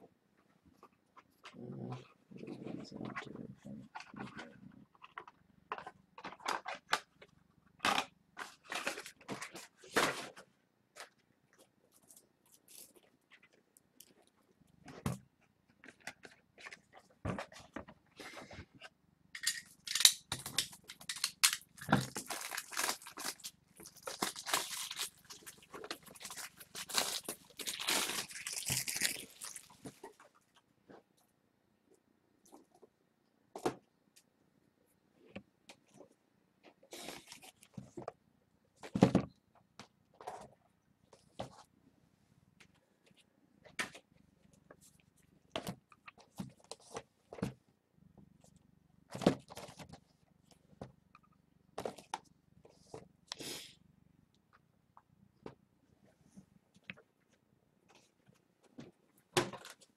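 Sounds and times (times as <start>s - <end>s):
packaging crinkling and rustling: 19.4s - 30.2s.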